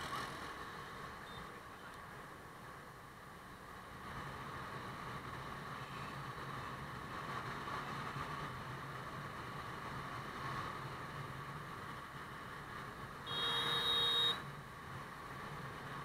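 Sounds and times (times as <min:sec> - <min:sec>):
road and wind noise: 0:00.0 - 0:16.0.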